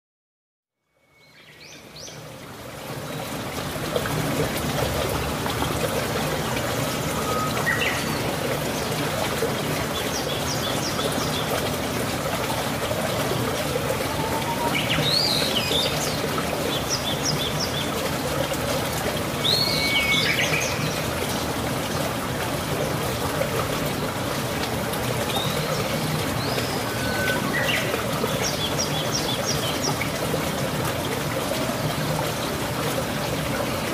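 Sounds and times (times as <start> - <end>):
running water rushing: 1.3 - 33.9
birds chirping: 6.5 - 9.0, 13.0 - 17.9, 25.3 - 30.0
swooping bird calls: 13.5 - 16.2.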